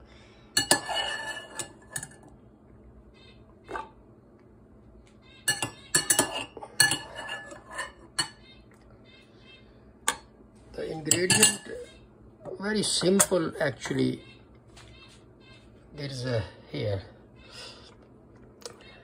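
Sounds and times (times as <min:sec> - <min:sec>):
kitchenware clinking on counter: 0:00.6 - 0:02.3, 0:05.4 - 0:08.4, 0:11.0 - 0:11.8, 0:12.9 - 0:14.0.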